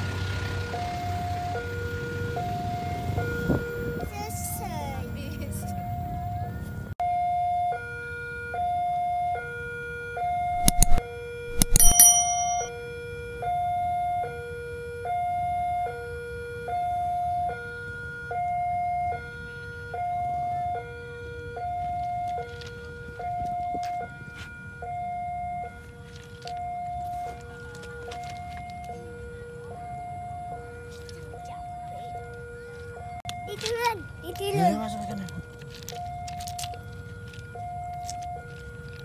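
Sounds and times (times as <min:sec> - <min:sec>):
level crossing two-tone chime: 0:10.6 - 0:12.7
sharp ringing knocks: 0:10.6 - 0:12.7.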